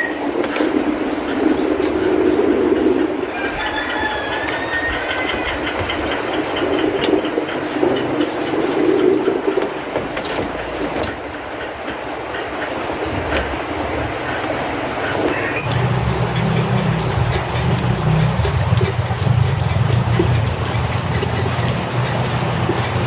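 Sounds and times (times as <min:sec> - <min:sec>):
low droning noise: 0:00.2 - 0:23.0
bird chirps: 0:15.0 - 0:23.0.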